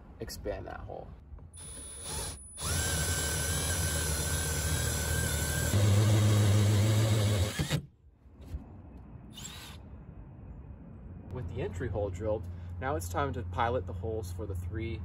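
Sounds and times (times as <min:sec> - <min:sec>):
drill spinning hole saw: 0:01.6 - 0:07.8.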